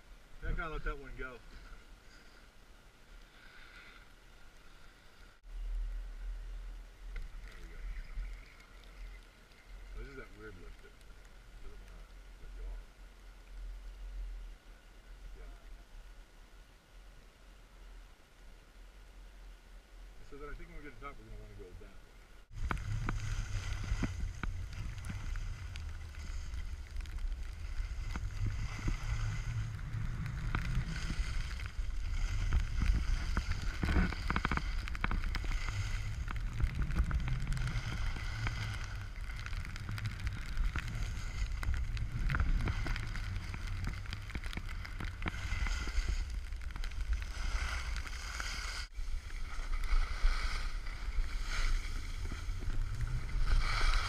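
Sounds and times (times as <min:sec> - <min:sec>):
wind buffeting microphone: 0:22.5 - 0:48.2
skis scraping on snow: 0:22.5 - 0:54.0.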